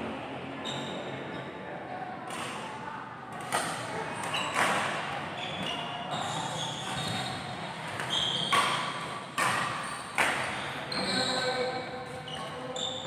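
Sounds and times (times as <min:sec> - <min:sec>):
rackets hitting shuttlecock: 0:07.9 - 0:10.6.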